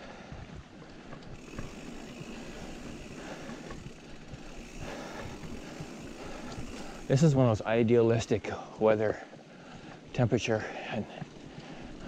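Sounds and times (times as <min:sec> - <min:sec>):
bike tyres rolling on dirt: 0:00.1 - 0:12.0
bike clicks and rattles: 0:00.9 - 0:07.6.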